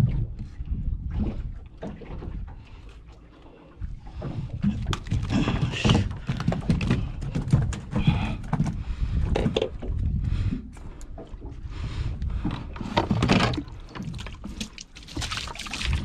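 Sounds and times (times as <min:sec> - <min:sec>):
knocks and thumps on boat: 0:00.0 - 0:02.7, 0:03.8 - 0:16.0
wind and water rumble: 0:00.0 - 0:16.0.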